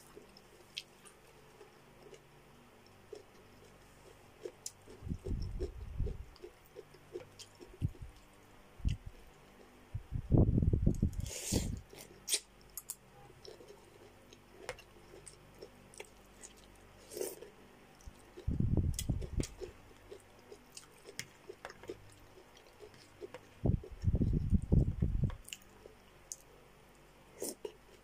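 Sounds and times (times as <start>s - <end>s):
person chewing wetly: 2.8s - 9.7s, 13.4s - 26.5s.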